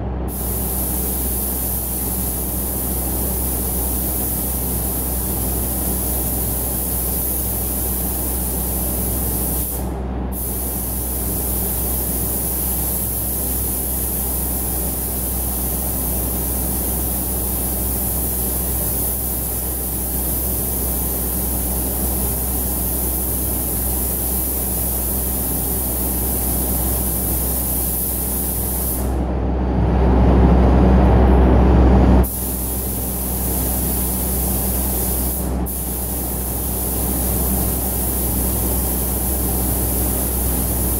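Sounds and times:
extraction fans droning: 0.0s - 40.9s
paint spray gun hissing: 0.3s - 29.2s, 32.2s - 40.9s
low rushing noise: 29.1s - 32.2s.

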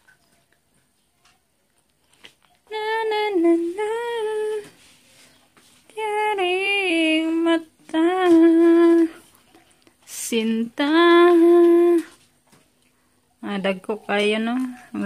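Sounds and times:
woman singing wordless tune: 2.6s - 4.8s, 5.9s - 9.3s, 10.1s - 12.2s.

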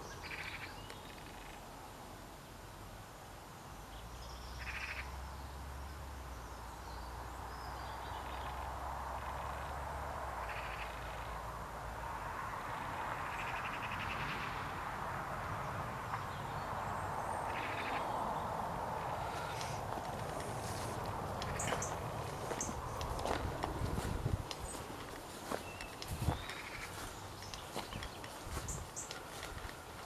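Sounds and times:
birds trilling: 10.4s - 11.4s, 13.2s - 14.6s, 16.1s - 30.0s
wind rumble on microphone: 12.6s - 29.8s.

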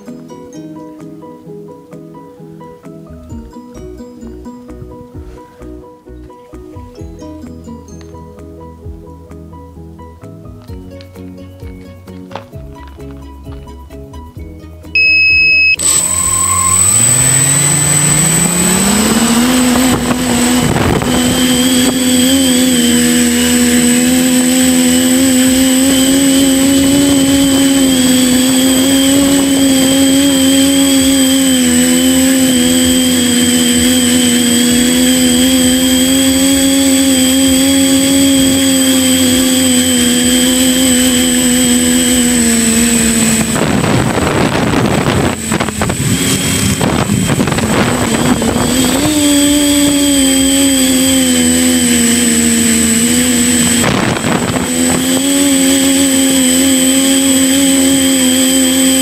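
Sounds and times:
electronic beep: 15.0s - 19.0s
quadcopter propeller drone: 15.0s - 59.0s.

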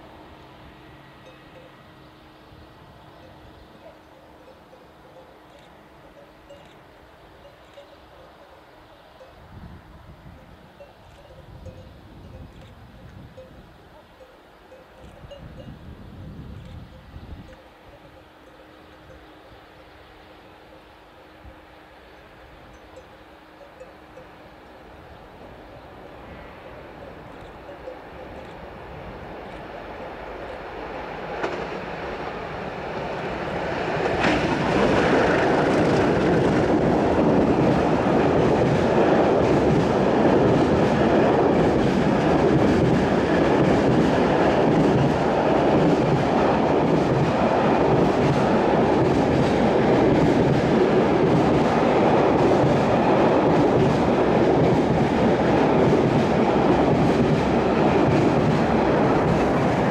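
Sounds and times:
diesel locomotives: 0.0s - 59.9s
train wheels clattering on rails: 27.1s - 59.9s.

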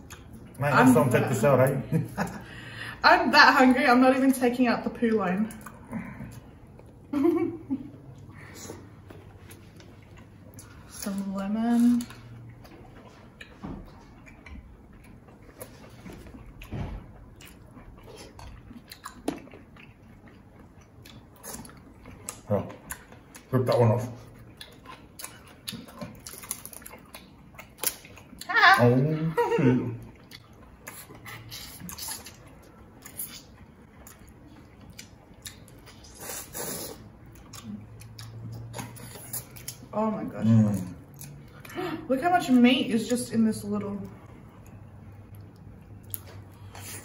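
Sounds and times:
quiet chewing and mouth sounds: 0.0s - 0.6s, 4.8s - 7.1s, 7.7s - 28.5s, 29.9s - 39.9s, 40.5s - 42.1s, 43.8s - 47.0s
shellfish cracking: 26.0s - 27.0s
wet sucking and chewing: 30.2s - 39.9s.

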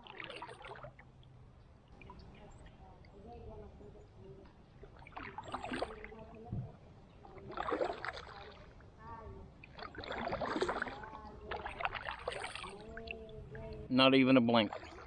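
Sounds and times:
kayak paddle splashing in water: 4.9s - 6.1s, 7.5s - 8.7s, 9.6s - 13.0s, 14.6s - 15.0s.

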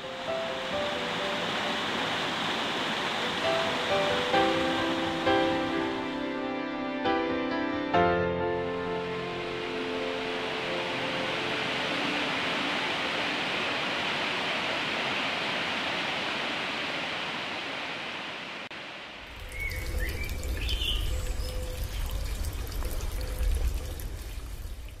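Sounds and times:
waterfall rushing over rocks: 0.0s - 6.4s, 9.0s - 21.9s
rushing water rumble: 0.0s - 6.5s, 8.8s - 25.0s
bird chirps: 19.4s - 22.4s.

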